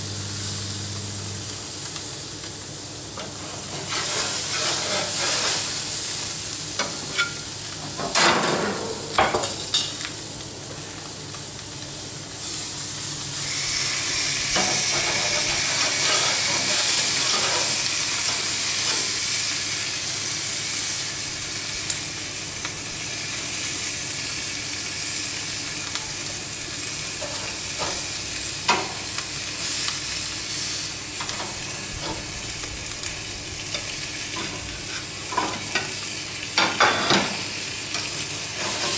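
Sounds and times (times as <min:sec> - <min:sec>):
fish sizzling on a grill: 0:00.0 - 0:38.9
metal spatula scraping grill grate: 0:03.4 - 0:05.8, 0:14.5 - 0:17.9, 0:38.6 - 0:38.9.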